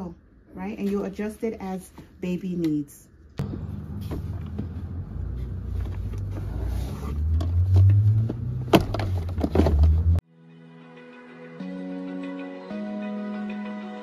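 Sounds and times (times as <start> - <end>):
plastic car seat knocking: 7.4 - 10.1.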